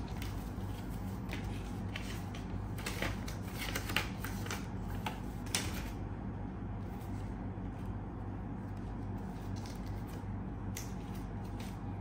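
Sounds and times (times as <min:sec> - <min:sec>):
paper rustling and crackling: 0:00.0 - 0:06.0, 0:08.6 - 0:10.3
steady low hum: 0:00.0 - 0:12.0.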